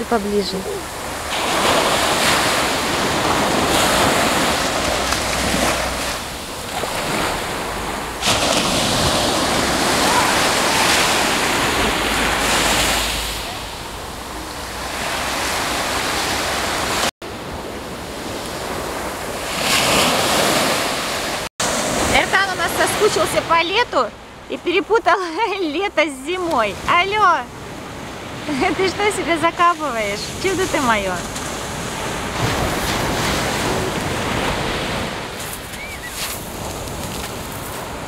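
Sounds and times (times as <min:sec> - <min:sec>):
surf washing on sandy beach: 0:00.0 - 0:38.0
wind rumbling on microphone: 0:00.8 - 0:23.1.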